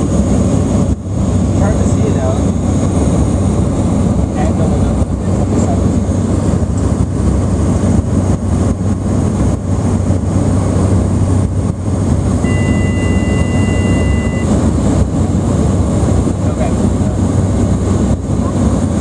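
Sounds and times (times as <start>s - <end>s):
deep hum: 0.0s - 19.0s
propeller plane engines droning: 0.0s - 19.0s
high two-note tone: 12.4s - 14.5s.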